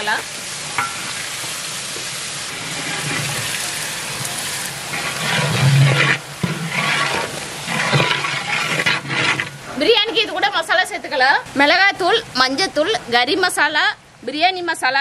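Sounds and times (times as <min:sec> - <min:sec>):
food sizzling in pot: 0:00.0 - 0:10.2
metal ladle scraping pot: 0:02.5 - 0:09.8.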